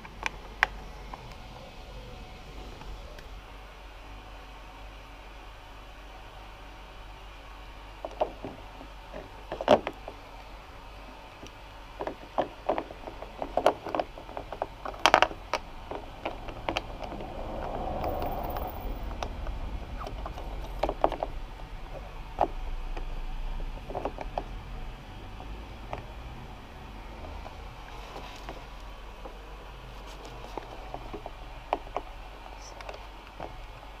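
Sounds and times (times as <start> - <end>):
low rumble: 14.7 - 27.9.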